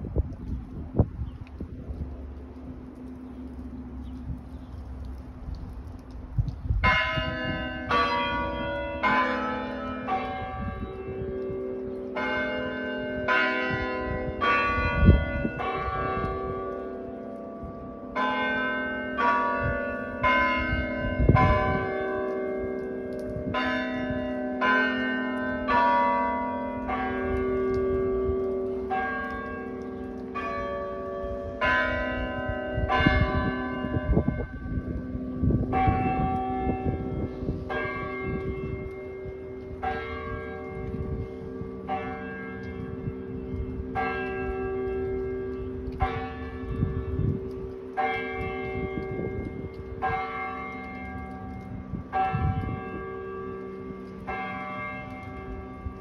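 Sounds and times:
tower chime bells: 0:06.8 - 0:56.0.

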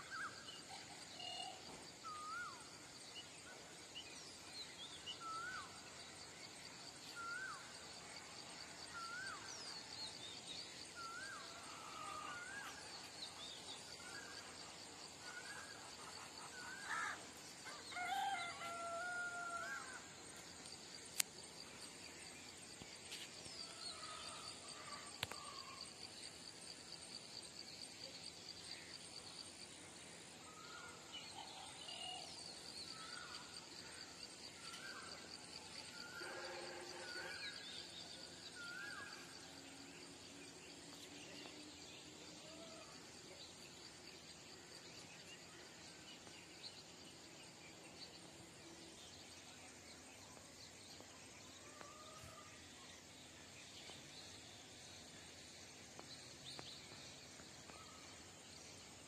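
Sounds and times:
high-pitched insect drone: 0:34.7 - 0:37.9.

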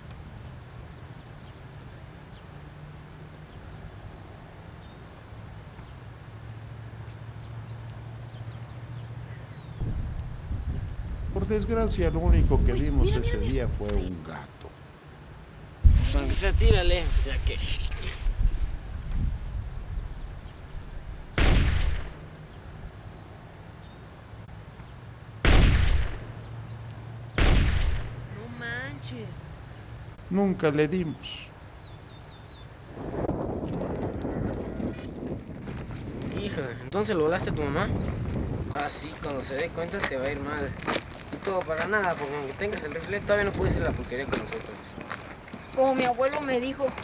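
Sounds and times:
low steady hum: 0:00.0 - 0:33.5
rifle shots: 0:21.4 - 0:22.3, 0:25.4 - 0:26.4, 0:27.4 - 0:28.3.

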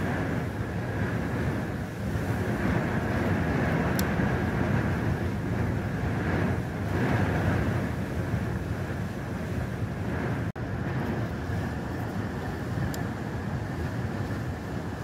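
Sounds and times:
strong wind buffeting microphone: 0:00.0 - 0:15.0.

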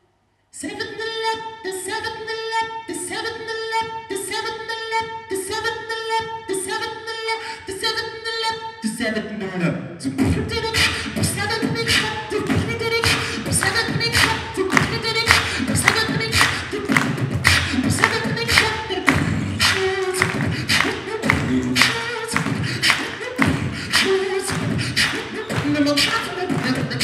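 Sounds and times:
person beatboxing: 0:10.0 - 0:27.0.

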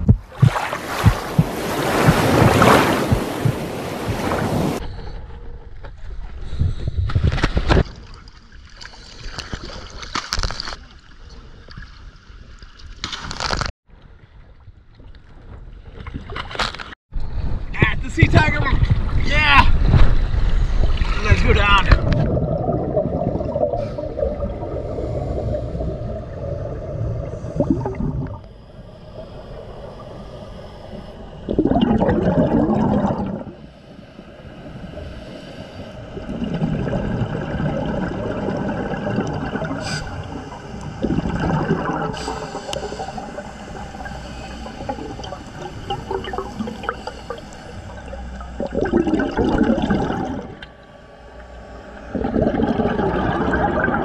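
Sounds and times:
underwater water noise: 0:00.0 - 0:17.6, 0:18.8 - 0:54.0
exhaled bubbles underwater: 0:21.9 - 0:33.7, 0:35.9 - 0:54.0.

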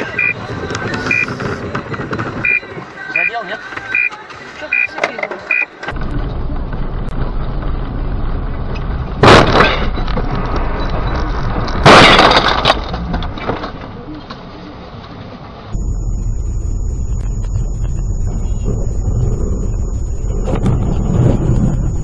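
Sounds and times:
road and engine noise: 0:00.0 - 0:22.0
short electronic beep: 0:00.1 - 0:00.4, 0:01.1 - 0:01.3, 0:02.4 - 0:02.6, 0:04.7 - 0:05.7, 0:15.8 - 0:22.0
car collision impacts: 0:09.2 - 0:10.0.

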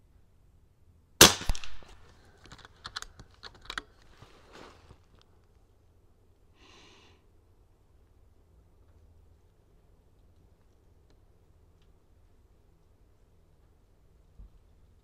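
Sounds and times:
air rifle shot crack: 0:01.2 - 0:02.1
metallic clicks of rifle action: 0:01.4 - 0:04.1.

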